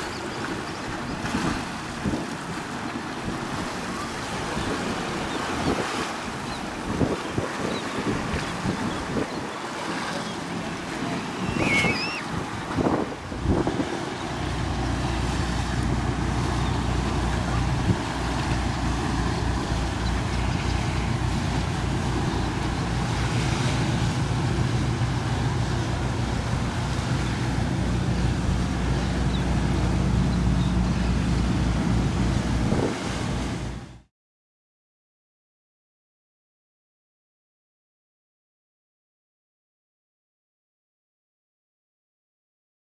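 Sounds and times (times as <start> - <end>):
motorboat engine rumbling: 0.0 - 34.1
surf: 0.0 - 34.1
wind noise on microphone: 1.0 - 2.6, 3.2 - 9.7, 11.2 - 34.0.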